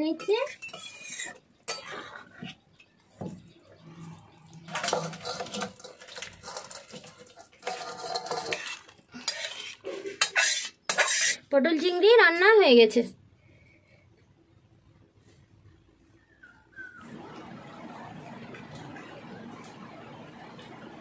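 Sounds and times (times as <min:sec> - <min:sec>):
metal spoon scraping a wok: 0:00.1 - 0:02.6, 0:04.6 - 0:11.5.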